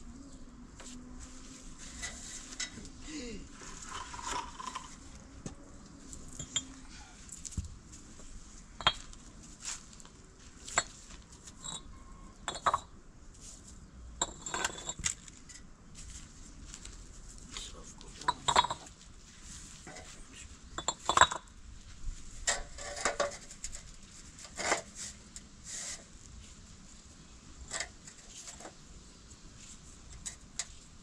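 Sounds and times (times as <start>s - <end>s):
hard objects clinking: 14.2s - 15.6s, 18.2s - 18.9s, 20.8s - 21.5s.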